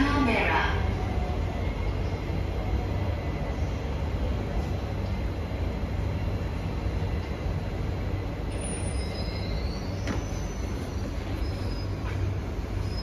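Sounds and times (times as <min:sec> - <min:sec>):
metro train rumble: 0:00.0 - 0:13.0
wheel squeals: 0:08.5 - 0:13.0.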